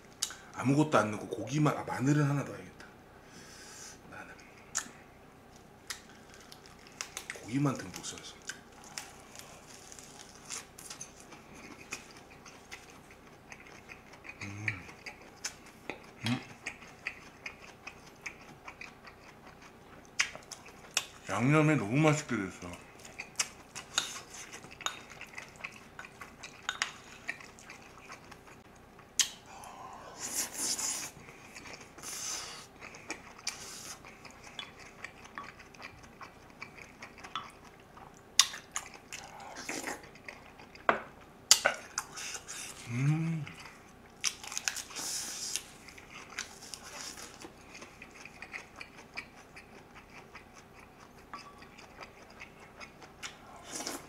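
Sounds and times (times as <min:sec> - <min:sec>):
person chewing and slurping: 0:08.4 - 0:21.3, 0:22.8 - 0:28.6, 0:29.2 - 0:40.9, 0:41.5 - 0:54.0
person humming: 0:14.4 - 0:14.9, 0:42.8 - 0:43.6.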